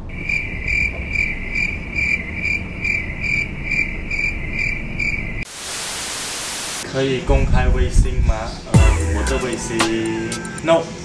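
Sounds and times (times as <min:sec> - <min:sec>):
crickets chirping: 0:00.0 - 0:06.8.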